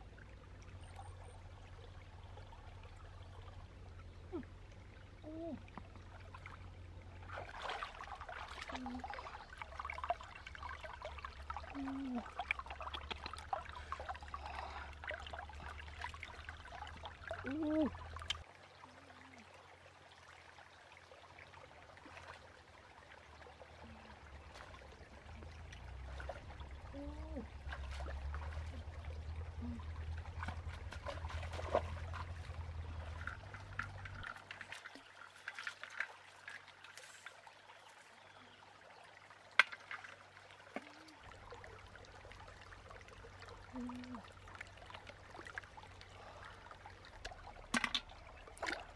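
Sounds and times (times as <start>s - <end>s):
small water splashes: 0.0s - 48.9s
stream trickling over rocks: 0.0s - 48.9s
stones knocking underwater: 39.6s - 40.1s, 47.2s - 48.9s.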